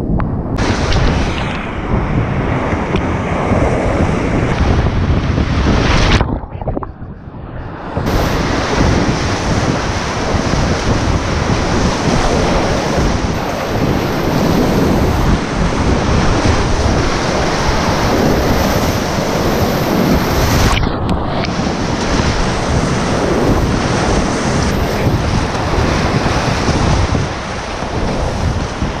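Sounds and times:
whitewater rushing and splashing: 8.1s - 29.0s.

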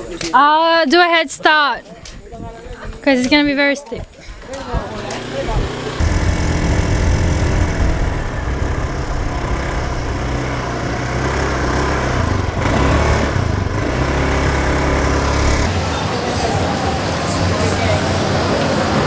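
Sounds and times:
motor scooter engine running: 5.2s - 15.8s.

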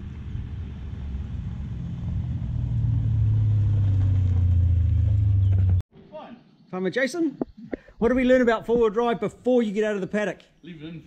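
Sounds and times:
low vehicle engine running: 0.0s - 5.8s.

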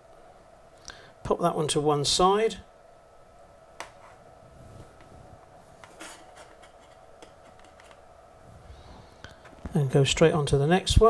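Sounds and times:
faint steady hum: 0.0s - 11.0s
soft rubbing: 3.9s - 9.7s.

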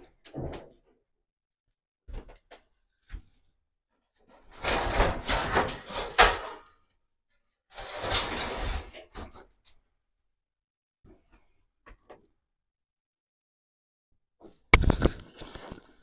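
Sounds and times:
door scraping and rattling: 4.4s - 6.7s, 7.7s - 9.4s.

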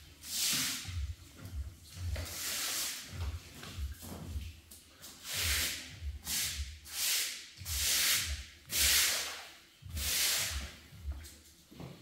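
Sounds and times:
brush scrubbing wet concrete: 0.2s - 3.8s, 5.0s - 10.7s.

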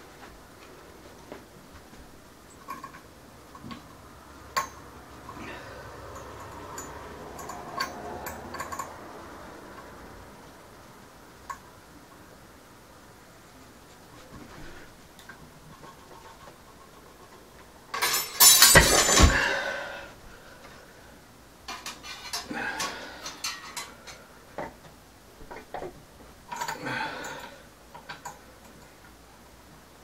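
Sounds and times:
metallic rattles and clicks: 2.5s - 5.4s, 6.1s - 9.0s, 15.2s - 19.4s
metal clanking and ringing: 17.9s - 19.6s
heavy thuds: 18.8s - 19.7s.

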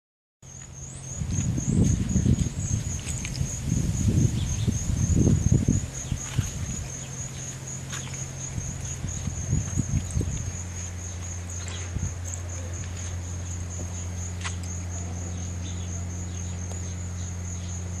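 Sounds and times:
cricket chirping: 0.4s - 18.0s
low steady hum: 0.5s - 18.0s
muffled microphone rumbles: 1.2s - 14.4s.

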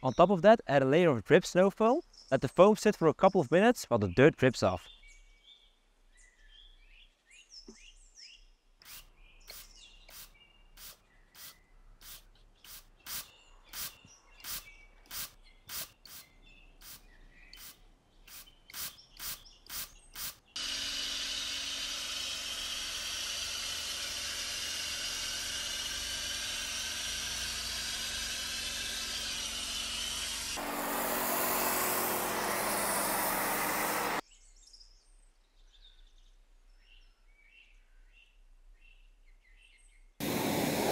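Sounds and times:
trigger spray bottle hissing: 8.8s - 17.0s, 17.6s - 20.4s
foam sprayer hissing: 8.9s - 16.2s, 23.5s - 34.2s, 40.2s - 40.9s.

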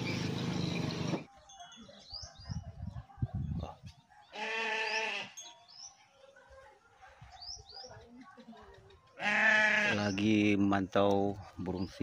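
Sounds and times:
goat bleating: 4.3s - 5.4s, 9.2s - 10.1s.

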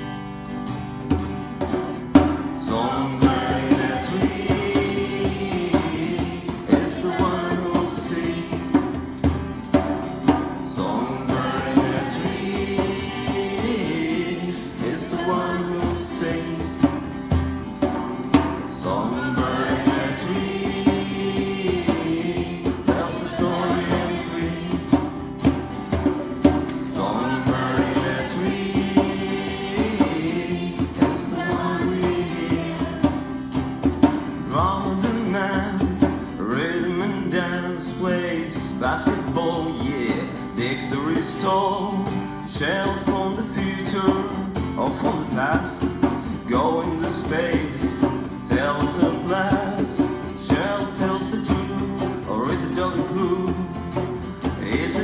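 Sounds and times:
strummed acoustic guitar: 0.0s - 55.0s
djembe drum beats: 1.1s - 36.6s, 42.1s - 55.0s
group of voices singing: 2.2s - 55.0s.

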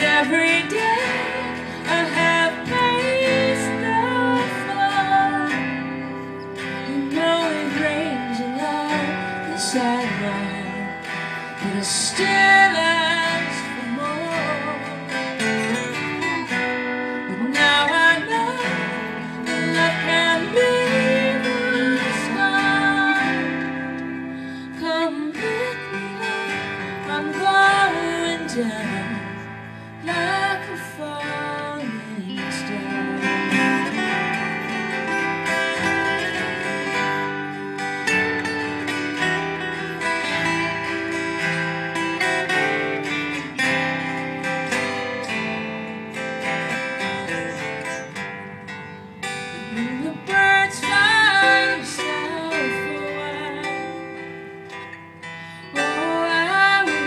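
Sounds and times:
woman singing: 0.0s - 48.1s, 48.7s - 57.0s
strummed acoustic guitar: 0.0s - 57.0s.

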